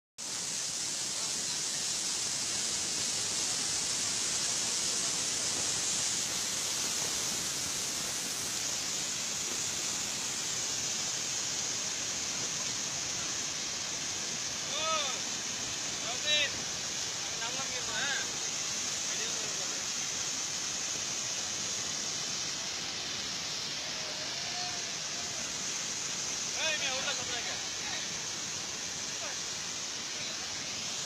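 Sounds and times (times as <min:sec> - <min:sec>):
waterfall rapids rushing: 0:00.2 - 0:31.0.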